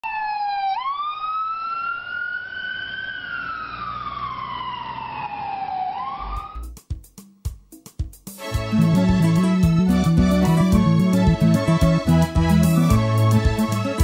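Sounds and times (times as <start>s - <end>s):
emergency siren wailing: 0.0s - 6.6s, 8.7s - 14.0s.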